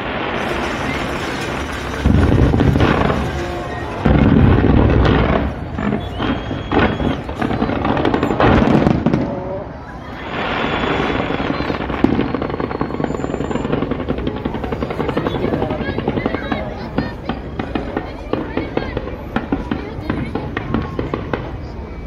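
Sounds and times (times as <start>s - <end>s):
steady dense noise: 0.0s - 10.6s
fireworks deep boom: 0.0s - 21.7s
fireworks bangs and crackles: 0.0s - 22.0s.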